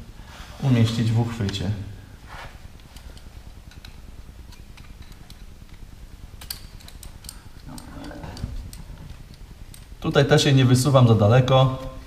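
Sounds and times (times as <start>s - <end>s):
low steady hum: 0.0s - 12.0s
clicks and taps of torch parts: 6.4s - 9.9s.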